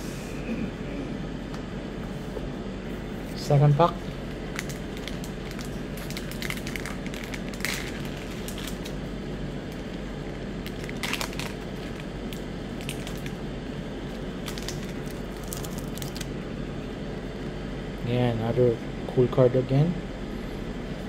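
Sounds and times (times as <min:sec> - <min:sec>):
foil wrapper crinkling: 0:04.1 - 0:09.0, 0:09.8 - 0:13.4, 0:14.3 - 0:16.4.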